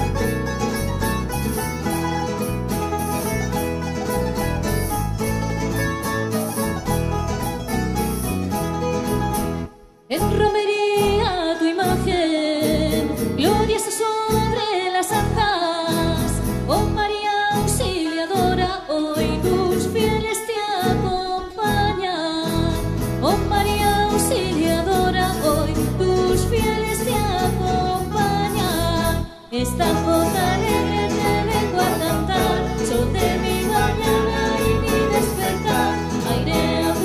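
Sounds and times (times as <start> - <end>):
sliding melodic lead line: 0.0 - 10.5, 22.8 - 37.0.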